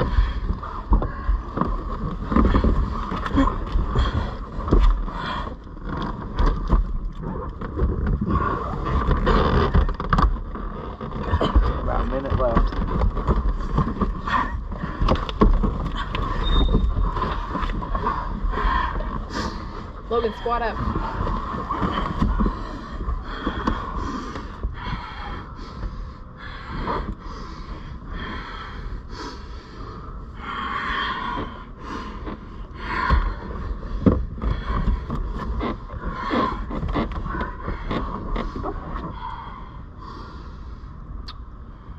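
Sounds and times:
heavy laboured breathing: 0.0 - 41.9
bodies bumping and rustling: 7.8 - 24.7.

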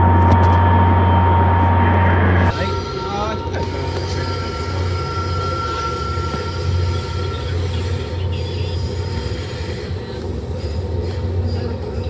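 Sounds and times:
train rumbling: 0.0 - 12.0
high wheel squeal: 2.5 - 12.0.

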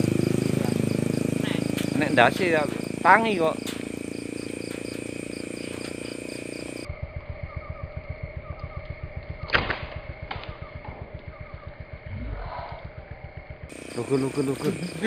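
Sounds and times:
crickets chirping: 0.0 - 15.0
fast low pulsing: 0.0 - 15.0
sharp snap: 9.5 - 10.6.

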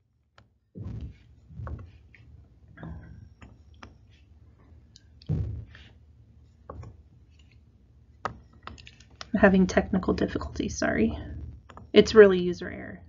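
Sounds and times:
keyboard and mouse clicks: 8.2 - 9.3.

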